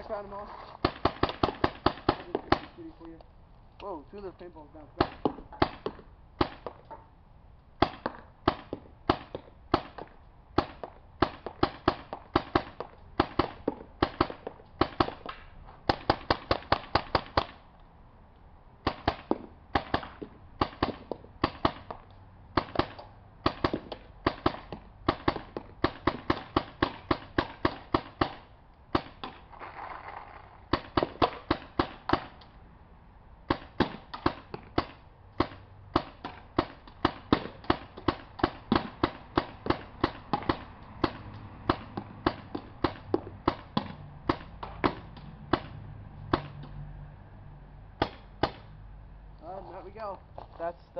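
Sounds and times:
paintball gun firing sharp pops: 0.8 - 3.2, 5.0 - 7.1, 7.8 - 17.6, 18.8 - 32.6, 33.5 - 46.8, 48.0 - 48.7.

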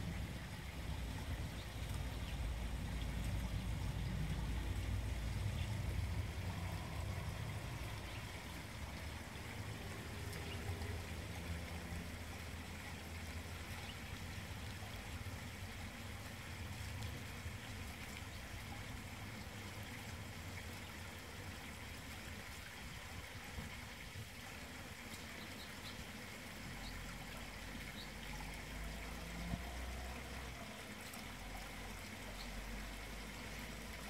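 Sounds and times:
low outdoor background rumble: 0.0 - 34.0.

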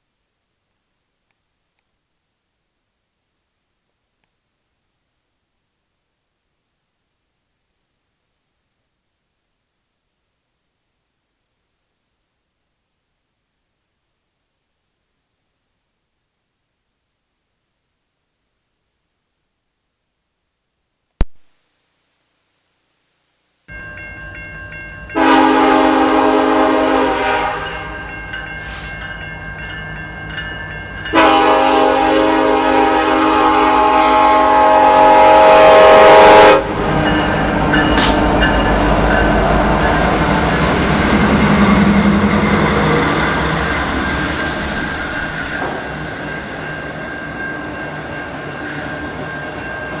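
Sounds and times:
locomotive horn blasts: 25.2 - 28.0, 31.1 - 37.0
train rumble and wheel clatter: 27.2 - 31.4, 36.6 - 50.0.

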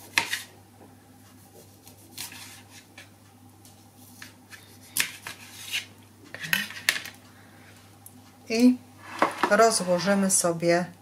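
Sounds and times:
knife slicing tomato on cutting board: 1.4 - 3.0.

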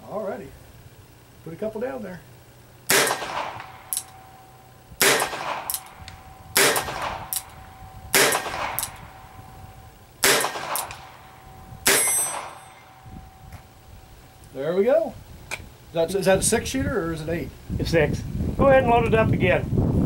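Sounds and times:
revolver shots with ringing echo: 2.9 - 13.8.

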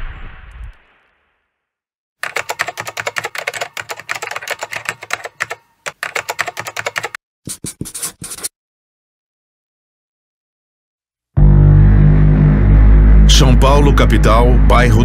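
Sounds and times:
keyboard typing clicks: 2.2 - 7.2.

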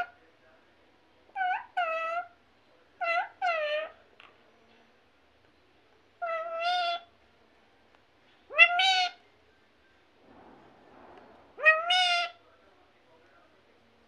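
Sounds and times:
parakeet calling: 1.4 - 2.4, 3.0 - 4.0, 6.2 - 7.1, 8.5 - 9.2, 11.4 - 12.4.

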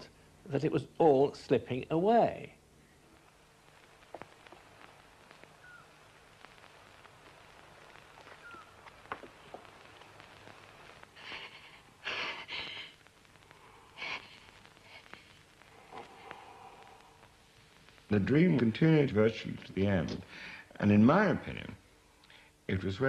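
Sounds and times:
faint clicks: 3.1 - 11.8, 22.2 - 22.4.

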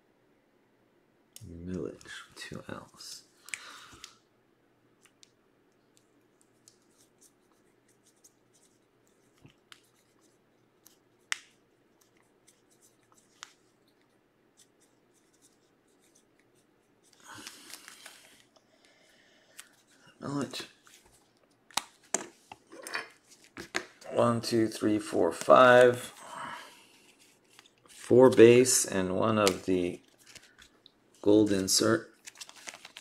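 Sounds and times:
cards in plastic sleeves rustling: 6.4 - 18.6, 19.5 - 26.2, 26.8 - 33.0.

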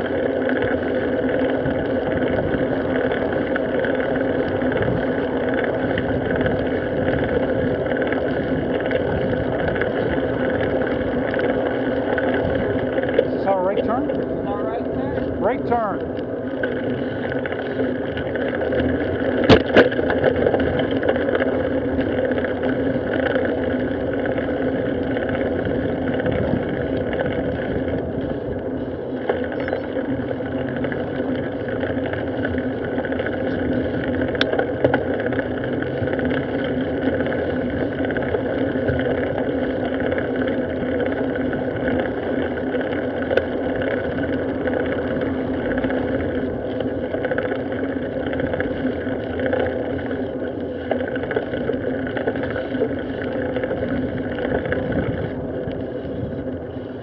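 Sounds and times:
tyres rumbling on pavement: 0.0 - 57.0
wind buffeting: 0.0 - 57.0
bike knocking over bumps: 19.2 - 21.5, 33.4 - 35.3.

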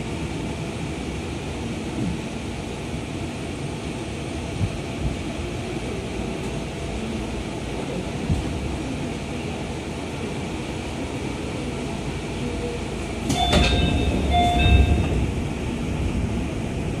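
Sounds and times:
train doors clunk and air rush: 0.0 - 9.5, 12.9 - 17.0
low hum of stationary train: 0.0 - 17.0.

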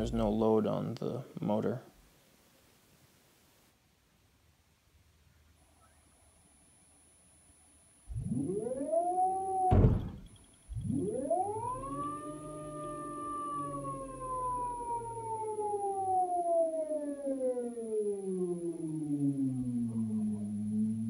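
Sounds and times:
electric motor whine: 8.1 - 15.7, 18.4 - 21.0
loud bang: 9.7 - 10.4.

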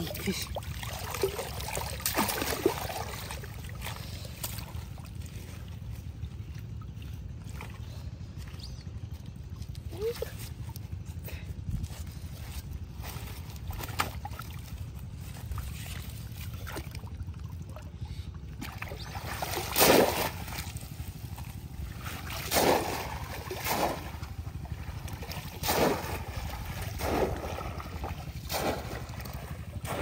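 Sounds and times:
water splashing: 0.0 - 5.7, 15.4 - 30.0
low steady rumble: 0.0 - 30.0.

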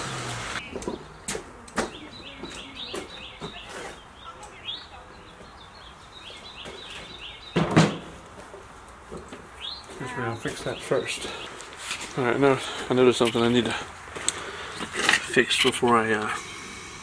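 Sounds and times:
small birds chirping: 0.6 - 7.6, 9.5 - 14.8.

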